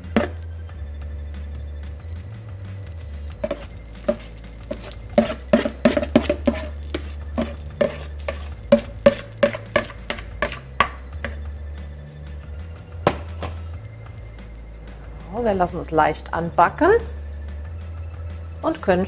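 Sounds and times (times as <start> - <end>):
metal spoon tapping mixing bowl: 0.0 - 0.5, 3.4 - 11.4
spoon scraping bowl: 0.0 - 0.5, 2.9 - 11.5
batter sizzling in butter: 2.1 - 11.4.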